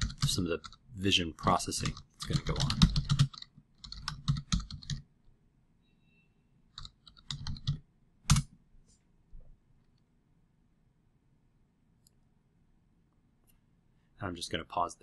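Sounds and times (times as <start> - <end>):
typing on computer keyboard: 0.0 - 0.8, 1.8 - 5.0, 6.7 - 8.5.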